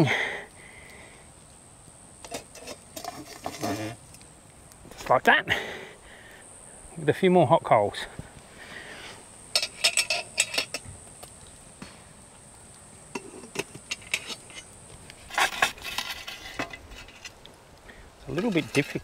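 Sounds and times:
metal shovel scraping steel ring: 0:09.6 - 0:10.8, 0:15.3 - 0:17.4.

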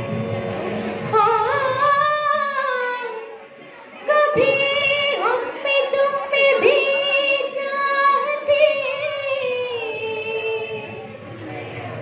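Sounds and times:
girl singing: 0:01.0 - 0:03.4, 0:04.0 - 0:11.0.

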